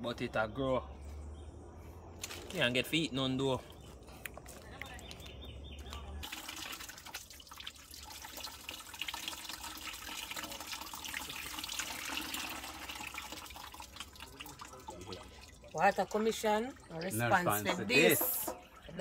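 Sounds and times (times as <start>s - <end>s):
water splashing over hands: 2.2s - 2.8s
tap water running into sink: 6.2s - 17.1s.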